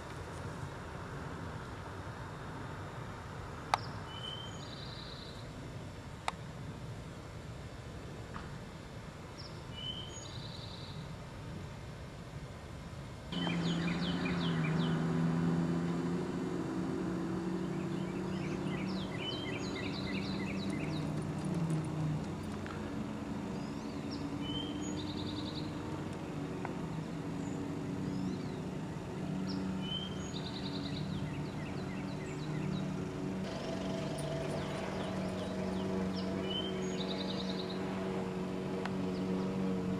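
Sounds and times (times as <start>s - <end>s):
songbirds chirping and trilling: 3.7s - 5.6s, 9.3s - 11.1s, 13.3s - 39.9s
low motor drone: 13.3s - 39.9s.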